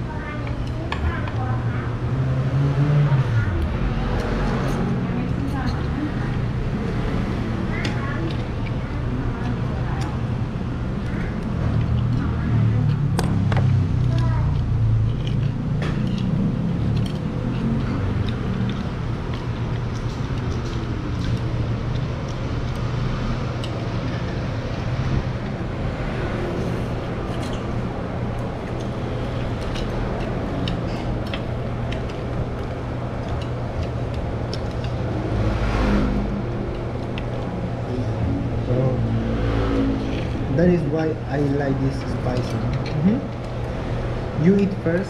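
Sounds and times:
road traffic hum: 0.0 - 45.0
chopsticks and spoons clicking bowls: 28.6 - 35.0.

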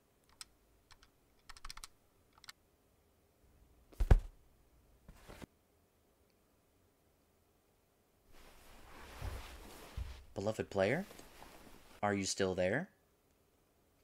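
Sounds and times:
keyboard key clicks: 0.3 - 2.6
soft rustle: 8.3 - 12.0.

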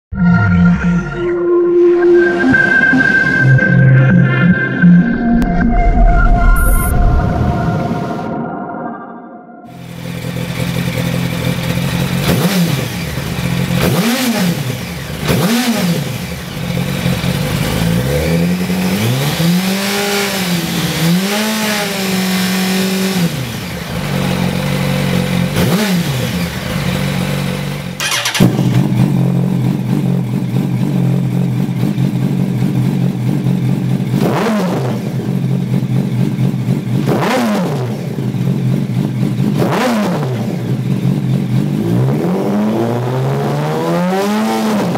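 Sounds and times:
motorcycle engine idling and revving: 9.7 - 44.9.

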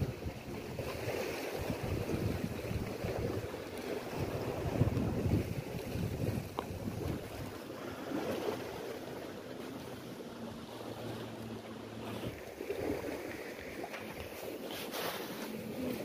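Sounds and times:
sea waves washing: 0.0 - 16.0
wind buffeting microphone: 0.0 - 16.0.

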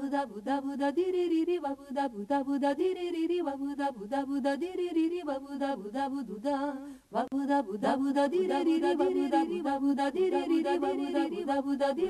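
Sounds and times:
men singing a cappella: 7.3 - 12.0.

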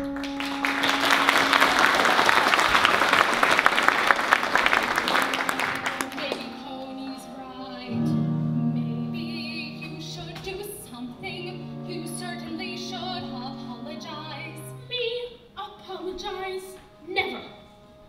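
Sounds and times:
sustained low instrumental notes: 0.0 - 14.9
woman singing opera: 6.2 - 17.6.

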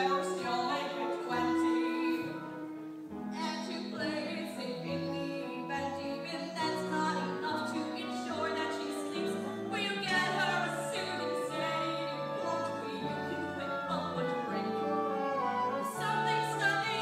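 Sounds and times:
show tune accompaniment: 7.3 - 17.0.

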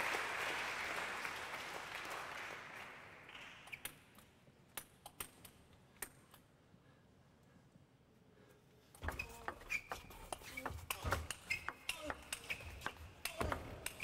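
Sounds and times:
applause: 0.0 - 3.7.

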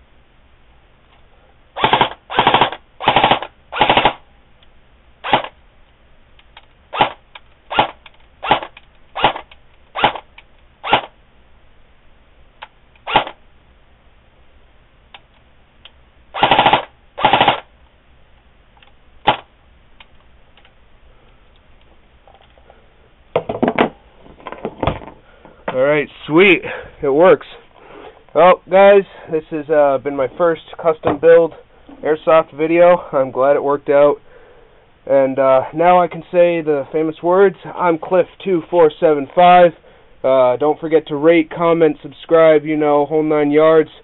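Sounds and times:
airsoft gun firing bursts: 1.8 - 4.2, 5.2 - 5.6, 6.9 - 11.2, 16.3 - 17.7, 19.2 - 19.5.

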